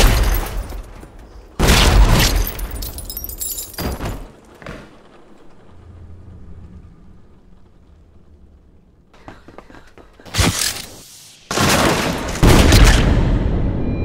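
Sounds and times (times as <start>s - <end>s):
gunshots: 0.0s - 0.7s, 10.3s - 13.6s.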